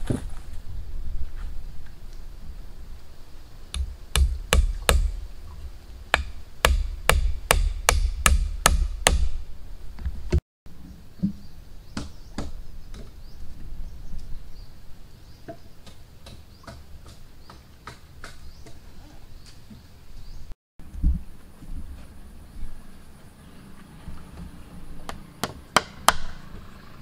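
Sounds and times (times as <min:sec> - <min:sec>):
hand tool striking wood: 0:03.7 - 0:05.2, 0:06.1 - 0:09.4, 0:25.1 - 0:26.4.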